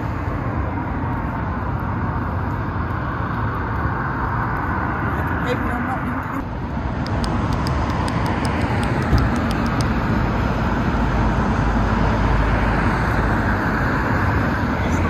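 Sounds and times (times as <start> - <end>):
passing cars rumbling: 0.0 - 15.0
light rapid ticks: 1.0 - 4.7, 7.0 - 10.1.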